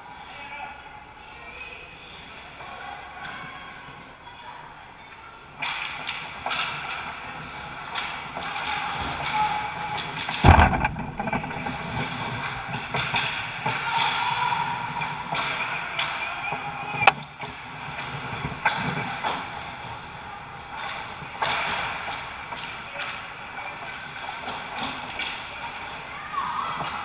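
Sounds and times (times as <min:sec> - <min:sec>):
hockey sticks clacking: 0:05.5 - 0:27.0
sharp crack: 0:10.2 - 0:14.2
heavy thud: 0:10.4 - 0:12.0.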